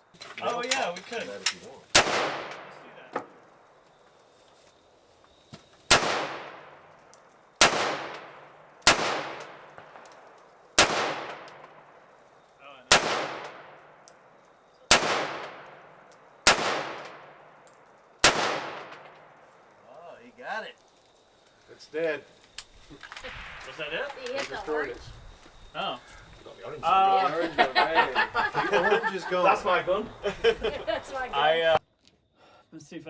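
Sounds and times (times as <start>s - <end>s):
rifle shots with echo: 1.9s - 2.8s, 5.9s - 6.9s, 7.6s - 10.1s, 10.8s - 12.0s, 12.9s - 14.0s, 14.9s - 17.6s, 18.2s - 19.4s.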